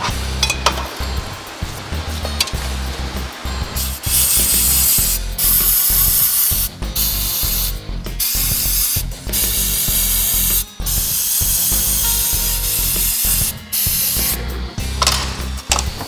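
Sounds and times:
aerosol can spraying: 3.2s - 15.8s.

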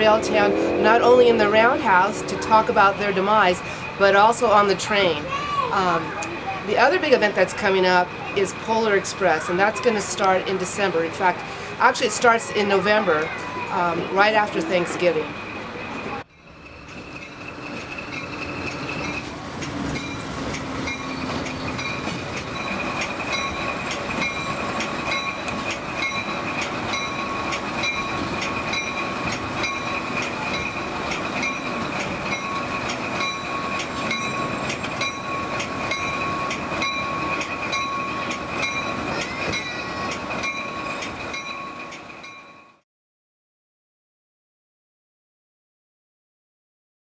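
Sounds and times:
train coaches rumbling: 0.0s - 42.8s
wheel clicks over rail joints: 16.7s - 42.1s.

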